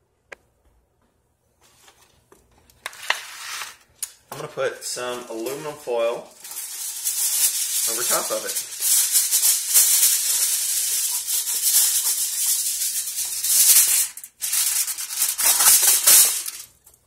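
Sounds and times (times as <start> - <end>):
aluminum foil crinkling: 5.1 - 17.0.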